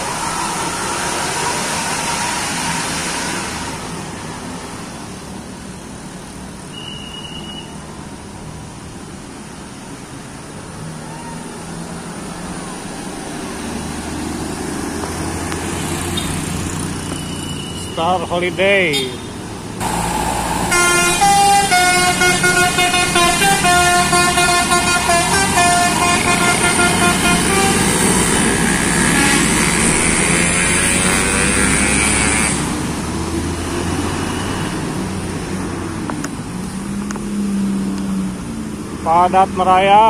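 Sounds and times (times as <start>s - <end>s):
bus engine: 0.0s - 40.0s
passing traffic: 0.0s - 40.0s
multi-tone bus horn tune: 20.6s - 32.6s.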